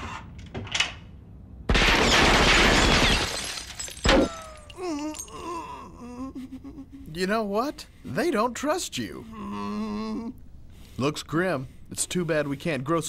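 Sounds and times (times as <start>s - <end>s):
glass breaking: 1.7s - 5.4s.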